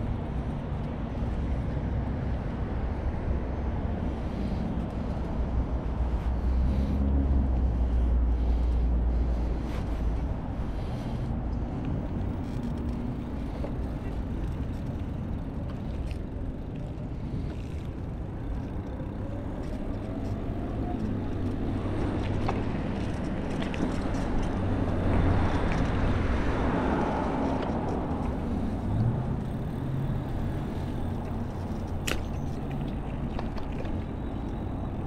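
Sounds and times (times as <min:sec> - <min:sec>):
low engine hum: 0:00.0 - 0:35.0
car passing: 0:16.0 - 0:35.0.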